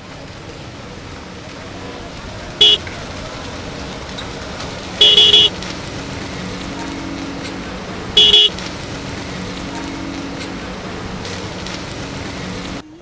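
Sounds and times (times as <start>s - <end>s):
car engine humming: 0.0s - 13.0s
car horn beeping: 2.6s - 3.0s, 5.0s - 5.6s, 6.9s - 8.7s.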